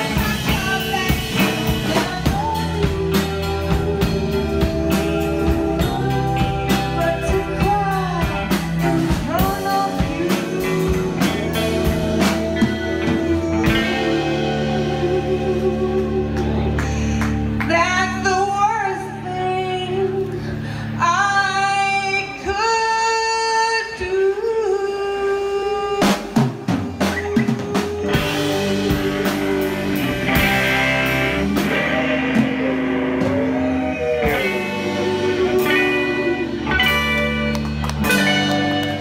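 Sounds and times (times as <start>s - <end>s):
drum kit beat: 0.0s - 17.6s, 26.0s - 39.0s
woman singing: 0.0s - 37.2s
electric guitar: 0.0s - 39.0s.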